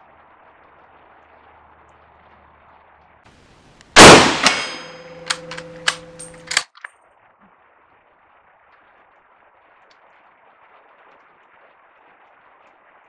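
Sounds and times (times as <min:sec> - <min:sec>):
rifle shot: 0:04.0 - 0:06.6
rifle bolt clicking: 0:04.0 - 0:06.9.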